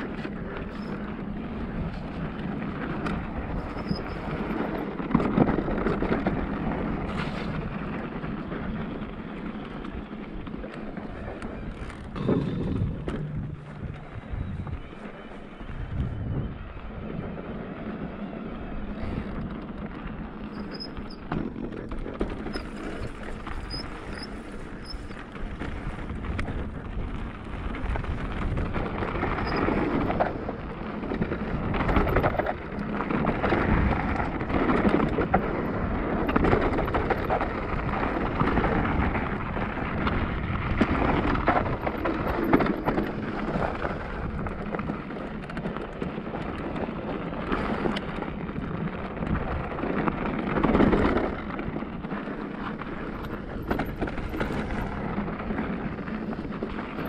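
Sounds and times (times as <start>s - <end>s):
bike rumbling and rattling on trail: 0.0s - 57.0s.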